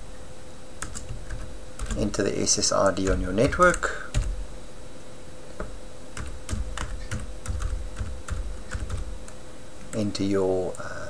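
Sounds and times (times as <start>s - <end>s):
keyboard typing: 0.8s - 2.2s, 2.8s - 4.4s, 5.6s - 10.2s.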